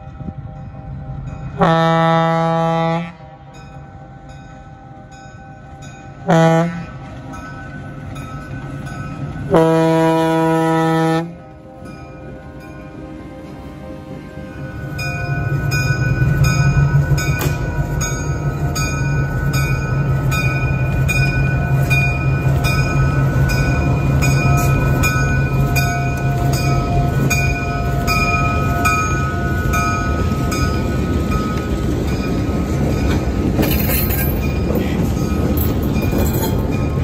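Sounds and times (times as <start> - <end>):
diesel locomotive engines droning: 0.0 - 37.0
bell ringing: 14.7 - 37.0.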